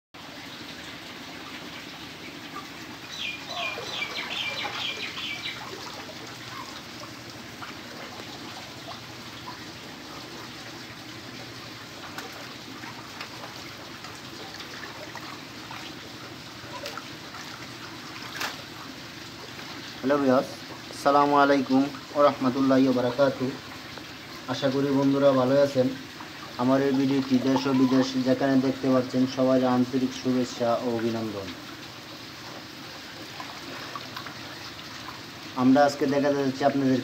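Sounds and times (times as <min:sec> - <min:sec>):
water sloshing and dripping: 0:00.2 - 0:37.0
bird chirping: 0:03.0 - 0:05.8, 0:27.5 - 0:28.1.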